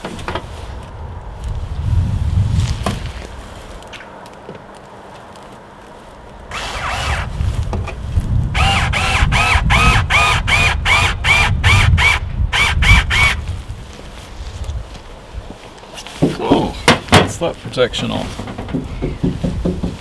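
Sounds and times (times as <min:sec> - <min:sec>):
power drill in short bursts: 0:06.5 - 0:07.3, 0:08.6 - 0:13.4.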